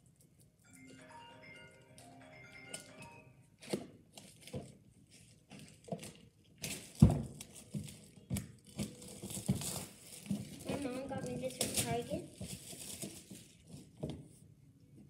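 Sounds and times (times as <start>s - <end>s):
plastic wrapping crinkling: 3.6s - 14.0s.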